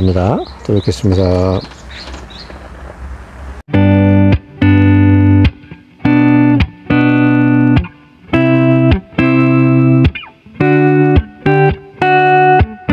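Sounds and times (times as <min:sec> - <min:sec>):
electric guitar chords: 0:03.7 - 0:12.9.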